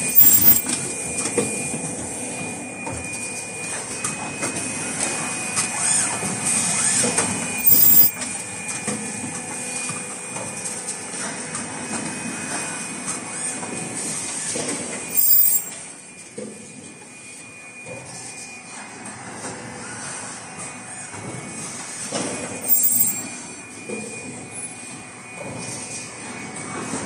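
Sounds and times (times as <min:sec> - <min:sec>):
loud mechanical bursts: 0:00.0 - 0:00.7, 0:07.6 - 0:08.2, 0:15.1 - 0:15.7
high machine whine: 0:00.0 - 0:27.0
mechanical clatter of production line: 0:02.8 - 0:27.0.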